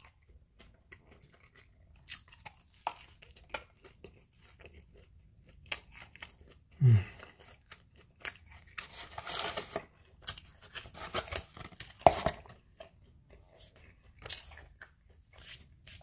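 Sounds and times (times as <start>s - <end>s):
eating noises: 0.0s - 8.9s
sandwich wrapper crinkling: 7.6s - 12.9s.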